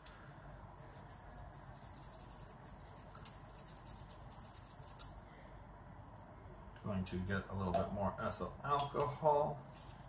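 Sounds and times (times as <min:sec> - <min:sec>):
cotton rubbing on metal: 0:00.6 - 0:05.1.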